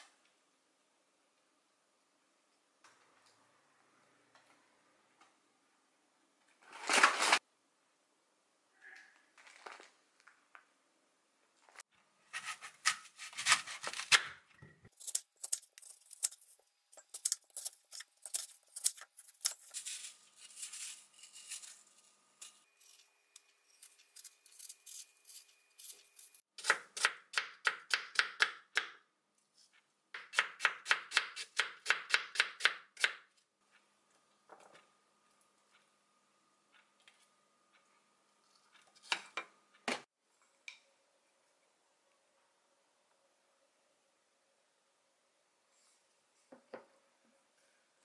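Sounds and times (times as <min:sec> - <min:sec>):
knife cutting crisp apple: 0:12.3 - 0:27.2.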